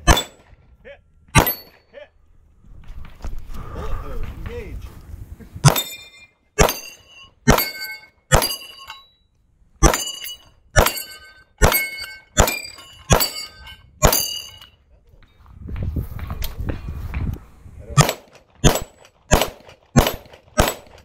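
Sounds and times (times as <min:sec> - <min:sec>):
carbine gunshots: 0:01.4 - 0:01.7, 0:06.6 - 0:08.6, 0:10.8 - 0:14.4, 0:18.0 - 0:21.0
steel target ringing: 0:01.4 - 0:01.8, 0:05.6 - 0:09.2, 0:09.8 - 0:14.8.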